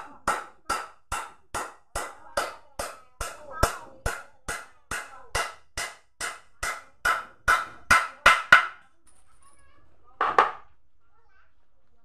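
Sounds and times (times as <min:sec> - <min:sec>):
hammer striking wooden frame: 0:00.0 - 0:08.8.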